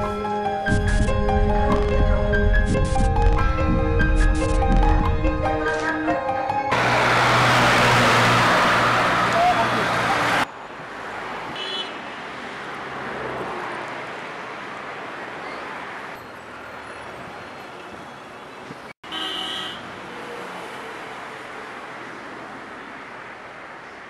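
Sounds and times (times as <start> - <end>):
passing road traffic: 3.4 - 24.0
car horn honking: 11.5 - 12.0, 19.0 - 19.9.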